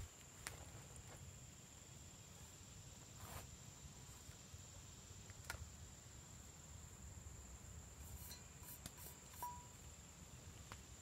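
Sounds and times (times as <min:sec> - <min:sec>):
faint high insect drone: 0:00.0 - 0:11.0
soft rustle: 0:02.3 - 0:04.4.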